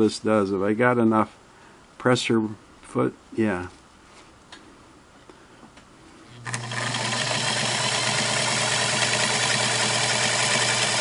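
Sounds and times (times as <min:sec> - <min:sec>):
sewing machine running: 0:06.4 - 0:11.0.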